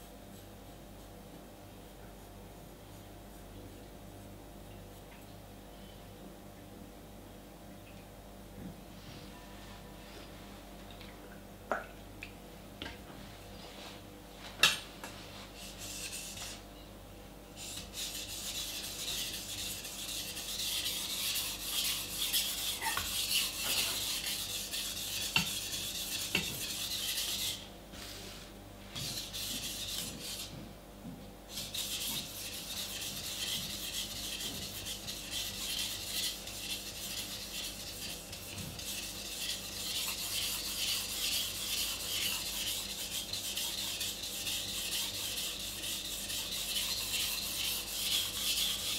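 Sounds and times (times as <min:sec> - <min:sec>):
knife scraping on whetstone: 0:17.6 - 0:27.7, 0:31.5 - 0:48.9.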